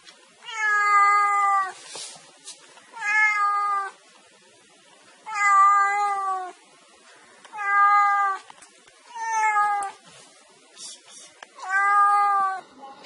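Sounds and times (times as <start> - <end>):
cat meowing: 0.4 - 1.8, 2.9 - 4.0, 5.2 - 6.6, 7.5 - 8.5, 9.1 - 10.0, 11.6 - 12.7.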